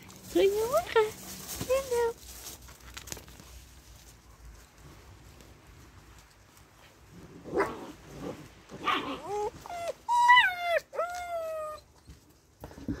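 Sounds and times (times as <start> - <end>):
puppies whining: 8.9 - 12.2.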